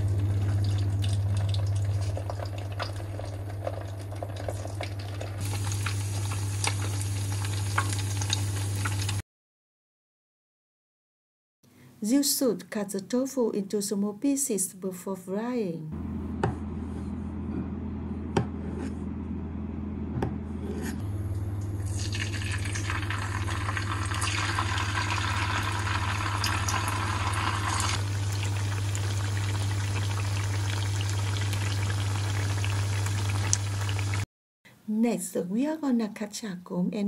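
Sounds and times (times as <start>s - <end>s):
tofu sizzling in oil: 4.4s - 9.2s, 22.0s - 34.2s
low hum: 15.9s - 34.2s.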